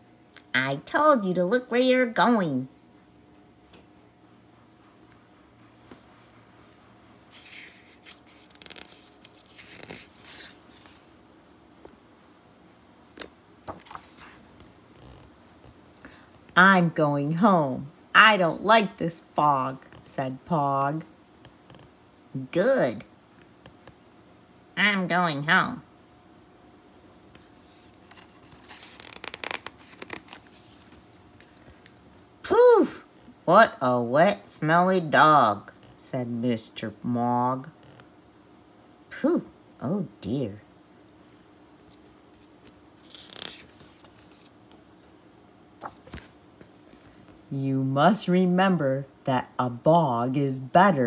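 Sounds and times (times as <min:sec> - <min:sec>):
paper page rustling: 0:06.7 - 0:11.2, 0:13.7 - 0:15.1, 0:27.3 - 0:32.0, 0:41.3 - 0:44.8, 0:45.8 - 0:47.4.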